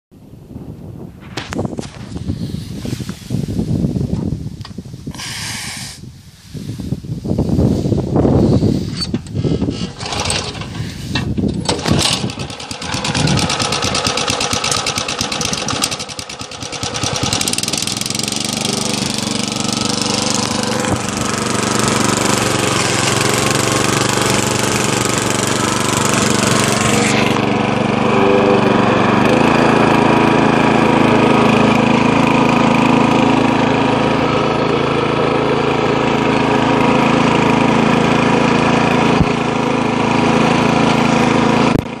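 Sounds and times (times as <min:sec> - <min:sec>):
tiller engine running: 0:08.6 - 0:42.0.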